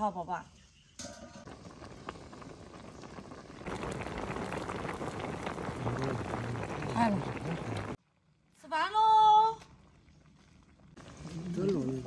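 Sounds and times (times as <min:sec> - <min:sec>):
metal lid clink: 0:01.0 - 0:01.4
soup boiling hard: 0:01.4 - 0:08.0, 0:09.7 - 0:12.0.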